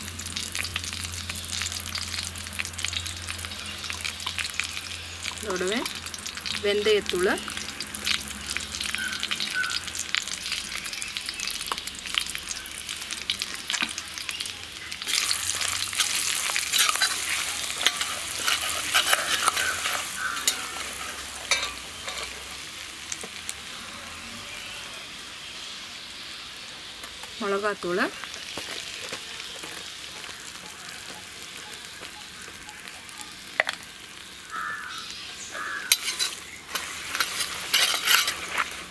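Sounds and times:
hot oil sizzling in a pan: 0.0 - 38.9
steel spoon scraping a pan: 15.1 - 22.6, 35.8 - 38.9.

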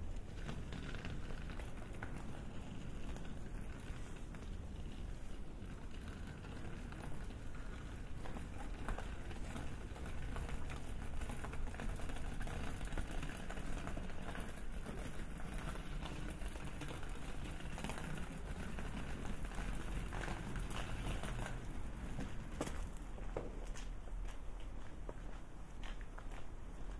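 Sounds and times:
low street rumble: 0.0 - 26.9
footsteps on pavement: 20.5 - 26.9.

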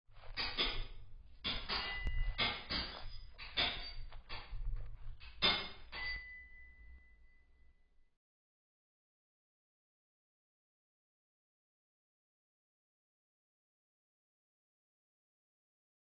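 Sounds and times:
glassy clinking knocks: 0.4 - 4.5, 5.3 - 6.8
high ringing tone: 6.0 - 8.1.

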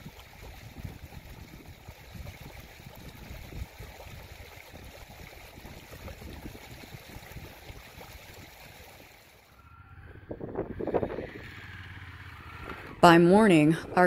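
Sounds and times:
wind buffeting microphone: 0.0 - 8.0, 10.0 - 14.0
creek running: 0.0 - 9.6.

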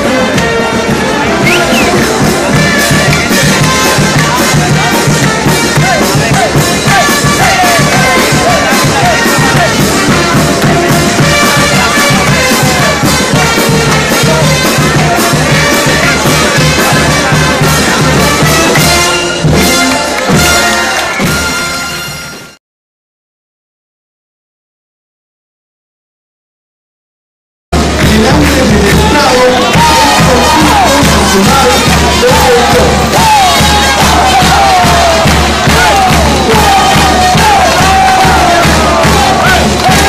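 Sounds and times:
crowd: 0.0 - 22.6, 27.7 - 40.0
loud music with steady beat: 1.4 - 19.2, 27.8 - 40.0.

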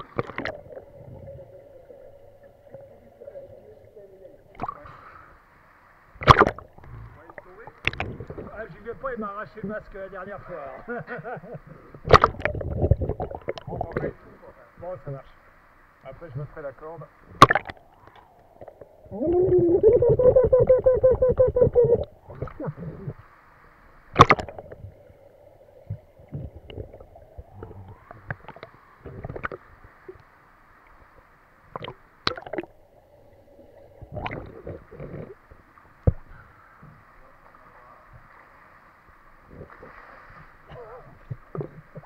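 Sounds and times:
underwater bubbling rush: 0.0 - 3.5, 6.2 - 8.8, 11.9 - 14.4, 17.3 - 23.3, 24.0 - 30.2, 31.6 - 37.2, 39.3 - 42.0
faint steady hum: 0.0 - 42.0.

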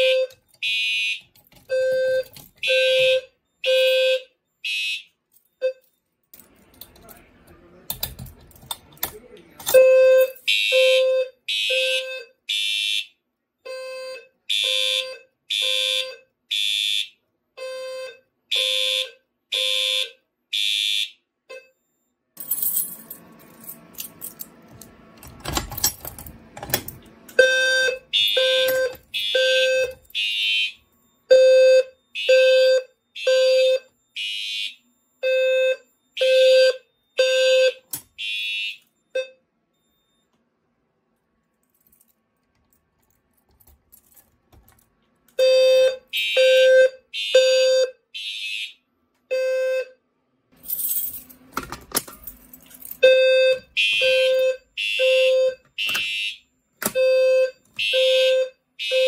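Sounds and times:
fire alarm horn blasts: 0.0 - 5.8, 9.7 - 21.8, 27.4 - 40.2, 45.4 - 50.0, 53.0 - 59.0
keys jangling: 22.4 - 24.8, 41.6 - 44.9, 50.6 - 53.0.

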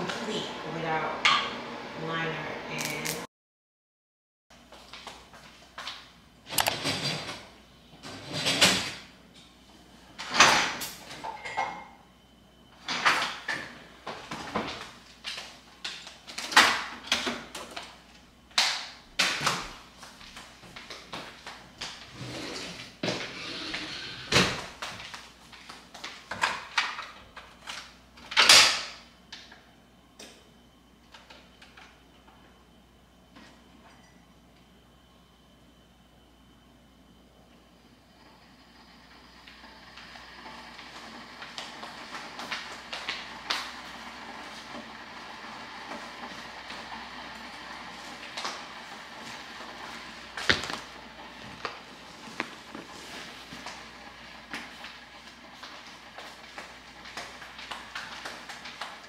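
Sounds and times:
cupboards and drawers opening and closing: 6.5 - 9.1, 10.2 - 11.8, 22.0 - 24.8.

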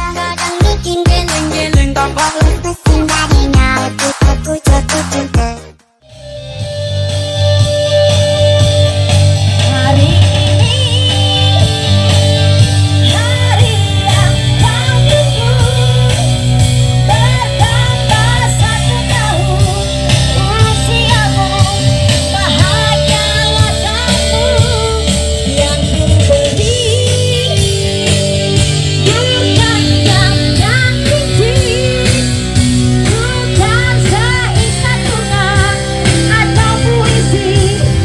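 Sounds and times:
person singing: 0.0 - 5.7, 9.5 - 28.0, 29.0 - 32.4, 33.0 - 38.0
heavy bass music: 0.0 - 38.0.

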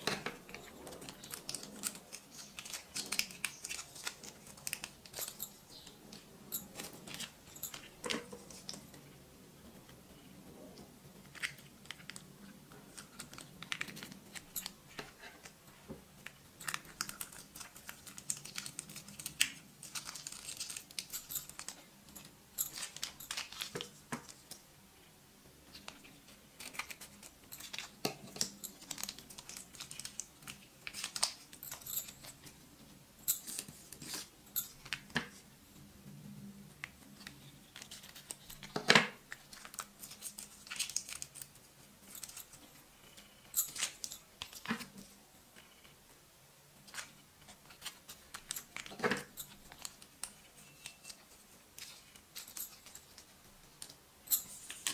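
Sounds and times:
plastic sachets crinkling and tearing: 0.5 - 5.8, 16.6 - 21.8, 26.6 - 31.6, 37.2 - 41.5.

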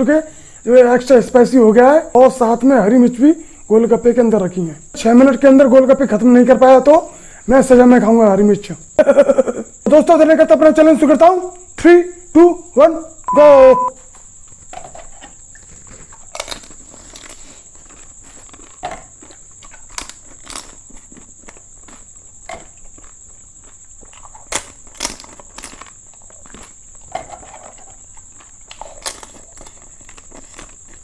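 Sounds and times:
high-pitched whine: 13.3 - 14.0
crisp shells crunching: 16.0 - 22.1, 24.4 - 31.0.

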